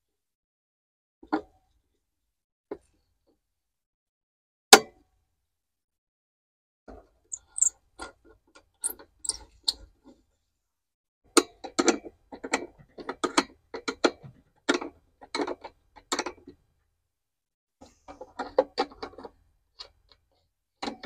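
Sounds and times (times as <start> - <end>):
ratcheting wrench clicking: 7.4 - 7.7.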